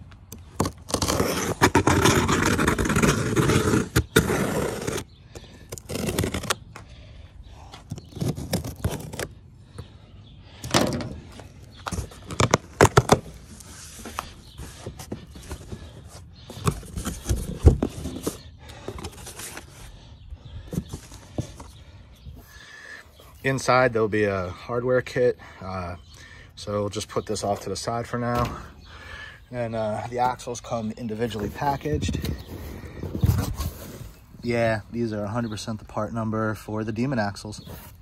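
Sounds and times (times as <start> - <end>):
cardboard box handling: 11.8 - 19.9, 20.7 - 21.8.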